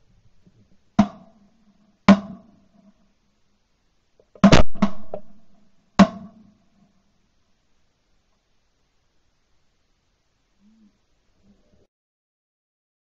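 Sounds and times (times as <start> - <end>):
shotgun shots: 4.4 - 6.3.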